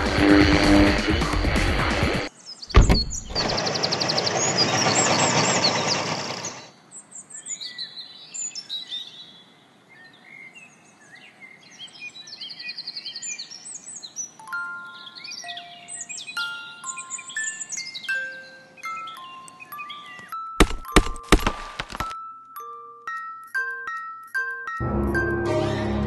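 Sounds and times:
birds chirping and twittering: 2.3 - 21.2
thump: 2.7 - 3.6.

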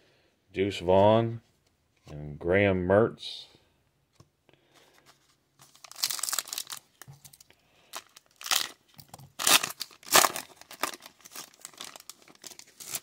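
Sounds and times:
foil wrapper crinkling: 5.6 - 13.0
foil wrapper tearing: 5.7 - 13.0.

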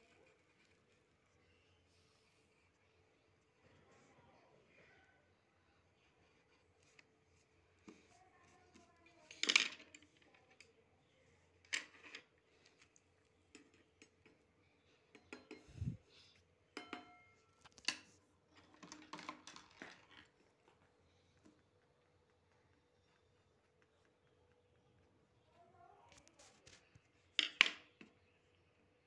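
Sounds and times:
objects clicking on wooden table: 17.7 - 20.3.

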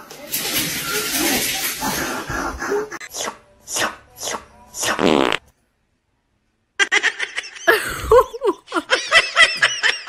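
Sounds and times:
person laughing and giggling: 6.8 - 10.0.

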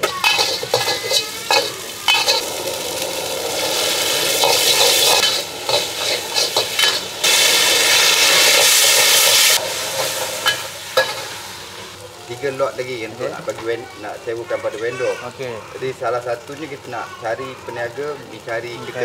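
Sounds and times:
metal spatula scraping wok: 0.0 - 11.9
noodles sizzling in wok: 0.0 - 19.0.

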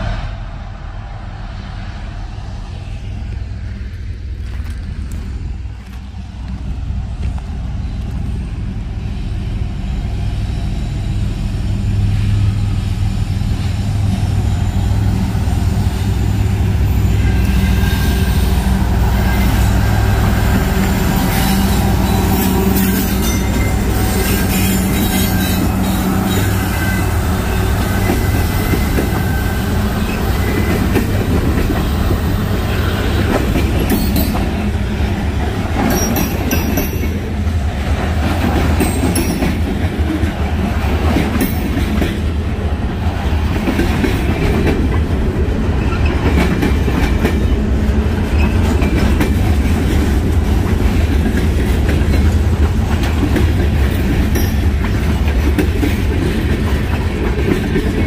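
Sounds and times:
freight train rumbling: 0.0 - 58.0
wheels clacking over rail joints: 19.1 - 58.0.

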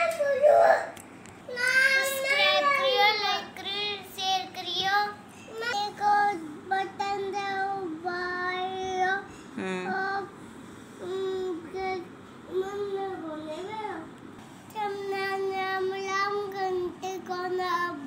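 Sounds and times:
child singing: 1.5 - 9.2, 14.8 - 18.0.

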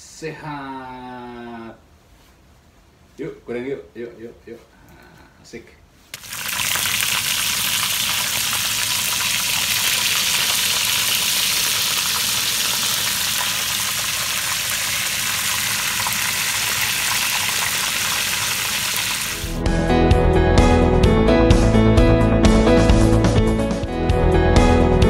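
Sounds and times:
food deep-frying in oil: 6.1 - 19.6
music: 19.4 - 25.0.

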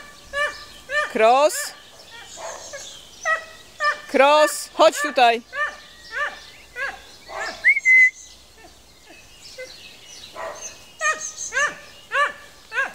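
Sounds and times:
dog yelping: 0.3 - 1.4, 4.8 - 8.0, 10.4 - 12.9
high whistle: 7.6 - 8.2.

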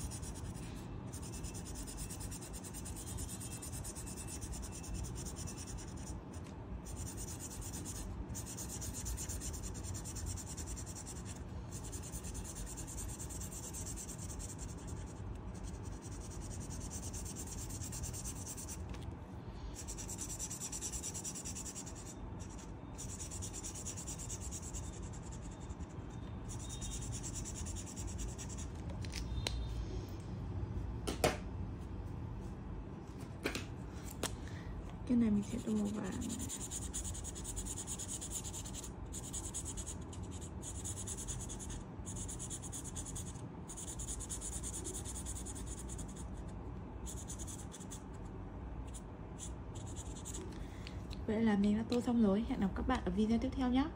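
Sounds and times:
pen scratching on paper: 0.0 - 19.0, 19.8 - 28.7, 35.4 - 46.4, 47.0 - 48.0, 48.8 - 50.4.

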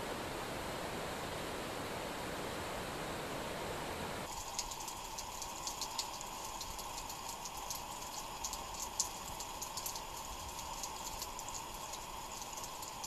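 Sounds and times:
faint steady hum: 0.0 - 13.0
light ticks and clicks: 4.5 - 13.0.

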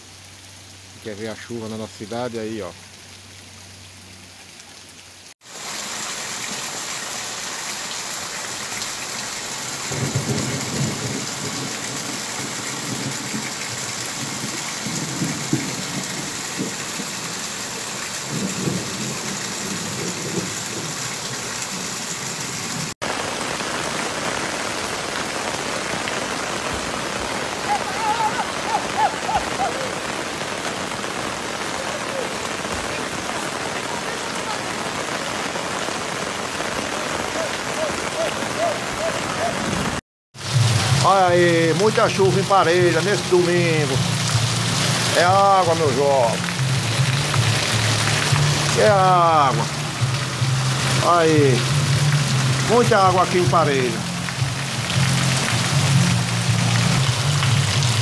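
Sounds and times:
heavy rain hissing: 0.0 - 58.0.

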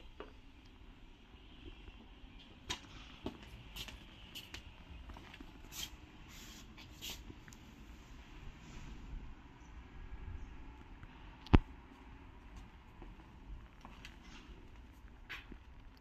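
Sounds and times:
footsteps on tiled floor: 2.4 - 7.6, 11.8 - 15.9.

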